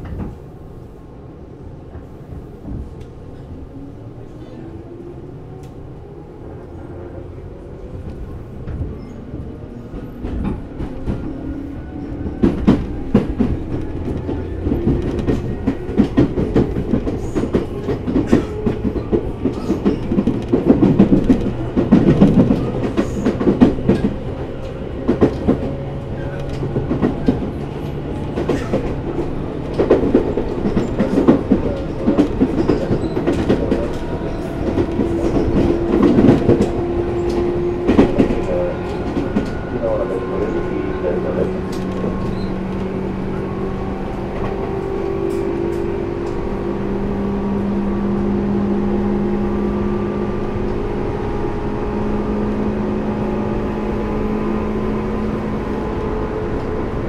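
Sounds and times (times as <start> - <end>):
wheels clacking over rail joints: 9.9 - 43.6.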